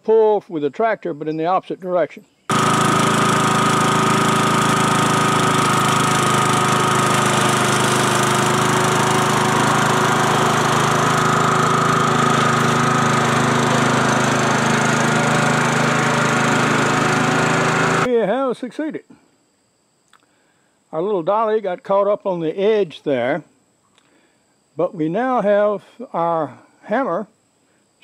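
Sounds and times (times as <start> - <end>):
small engine running under load: 2.5 - 18.1.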